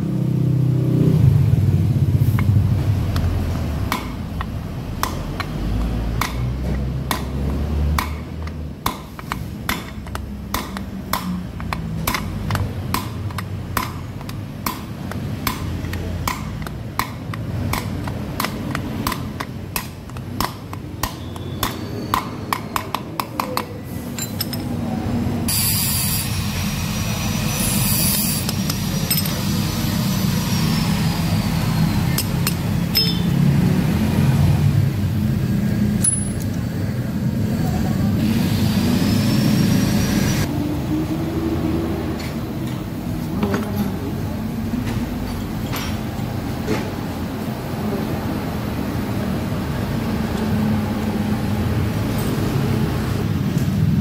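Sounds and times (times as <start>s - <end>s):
hammer striking steel rod: 3.9s - 24.7s, 32.1s - 33.4s
noise with high ringing tones: 25.5s - 33.5s.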